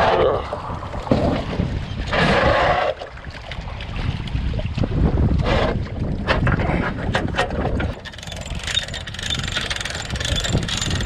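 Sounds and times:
water splashing: 0.0s - 11.0s
wind rumbling on microphone: 0.0s - 11.0s
hand winch clicking: 8.0s - 11.0s.

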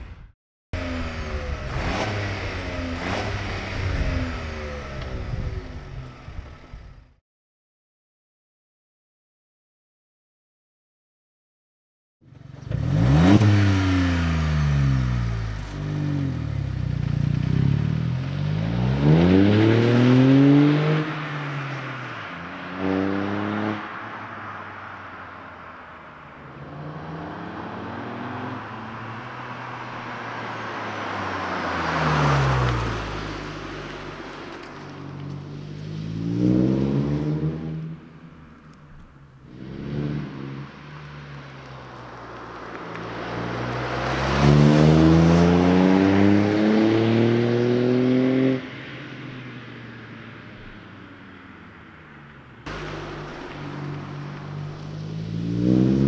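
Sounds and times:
car engine revving: 0.8s - 6.7s, 12.3s - 25.0s, 26.5s - 38.8s, 39.4s - 48.7s, 52.6s - 56.0s.

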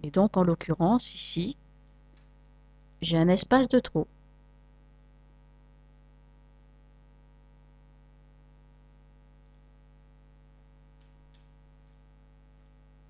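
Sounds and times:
low electrical mains hum: 0.0s - 13.0s
faint mouse clicks: 9.4s - 9.7s, 11.0s - 12.0s.

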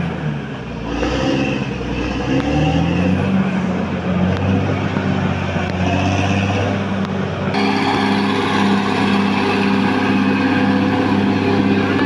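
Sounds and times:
bulldozer diesel engine running: 0.0s - 12.0s.

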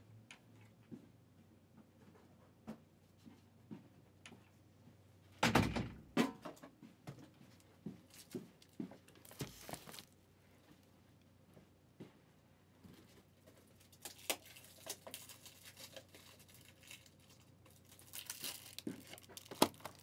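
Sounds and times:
handling knocks and thumps: 5.4s - 10.1s.

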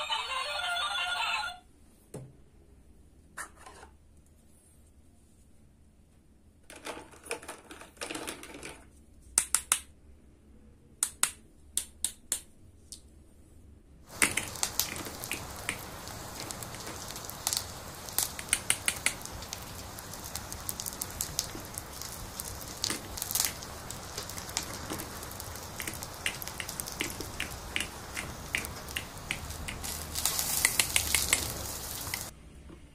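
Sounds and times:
steady hiss: 14.1s - 32.3s.

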